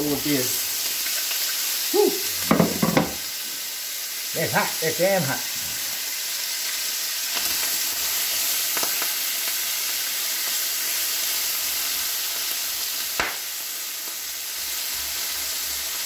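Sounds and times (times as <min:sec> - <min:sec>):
bacon sizzling in a frying pan: 0:00.0 - 0:16.0
fat popping: 0:02.4 - 0:03.2
spatula knocks: 0:02.5 - 0:03.2.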